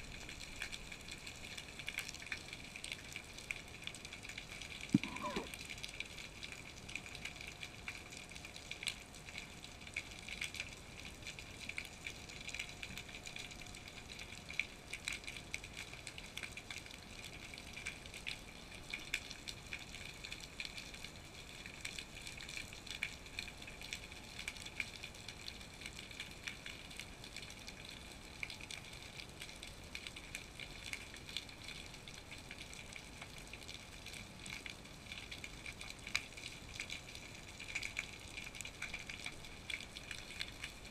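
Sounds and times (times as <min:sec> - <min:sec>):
faint steady tone: 0:04.9 - 0:05.8.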